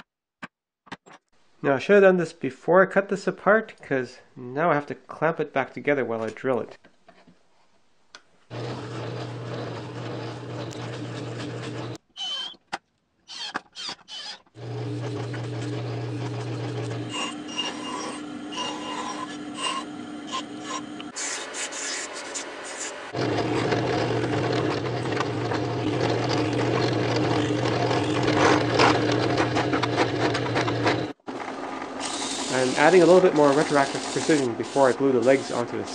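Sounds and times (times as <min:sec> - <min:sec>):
belt sander grinding wood: 0:08.5 - 0:12.0, 0:14.1 - 0:35.9
drill press drilling wood: 0:08.5 - 0:12.6, 0:13.3 - 0:21.2, 0:23.2 - 0:35.9
cordless drill driving screws: 0:13.3 - 0:14.4.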